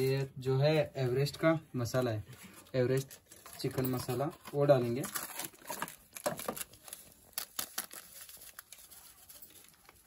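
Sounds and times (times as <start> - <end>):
plastic packet crinkling: 3.0 - 10.0.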